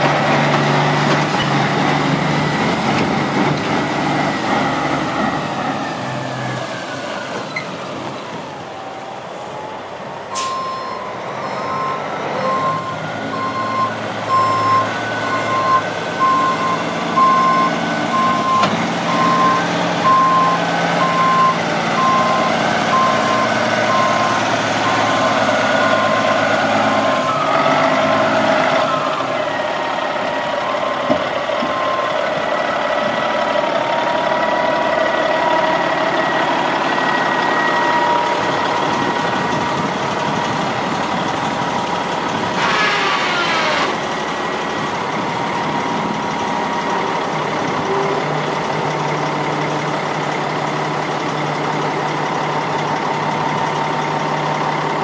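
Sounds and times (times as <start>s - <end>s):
diesel truck engine running: 0.0s - 55.0s
reversing alarm beeping: 10.3s - 26.4s.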